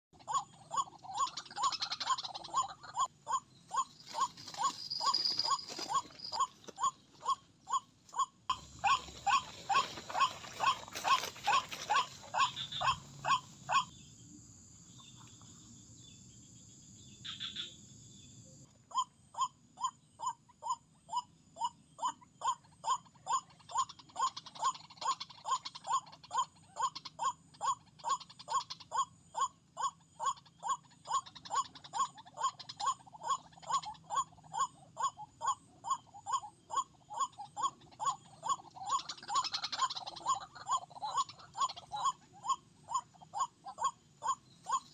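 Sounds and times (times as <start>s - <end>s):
waterhen calling: 8.5s - 13.9s.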